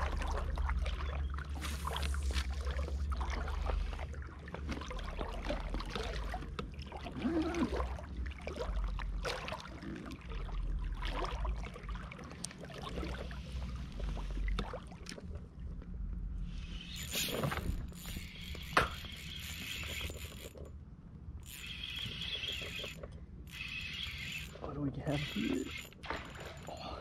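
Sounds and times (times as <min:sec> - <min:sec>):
water splashing and lapping: 0:00.0 - 0:27.0
steady low rumble: 0:10.2 - 0:19.3.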